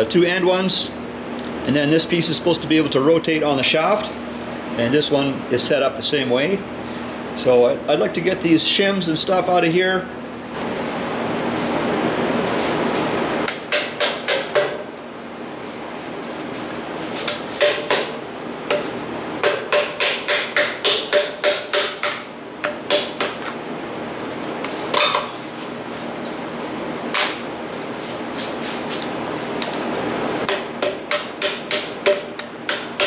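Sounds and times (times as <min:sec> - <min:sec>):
hammer striking: 0:13.5 - 0:14.8, 0:17.3 - 0:18.1, 0:18.7 - 0:23.4, 0:30.5 - 0:33.0.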